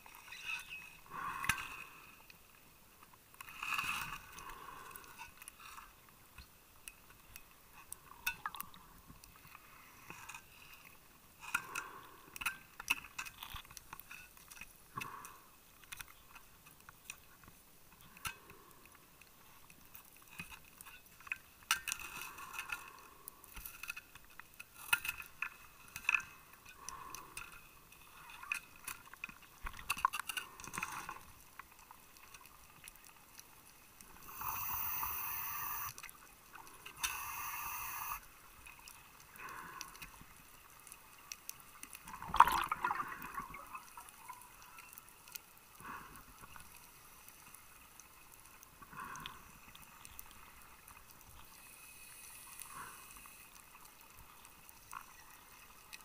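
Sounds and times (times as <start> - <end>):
sharp clicks and crackles: 3.0 - 56.0
underwater bubbles gurgling: 32.6 - 45.1.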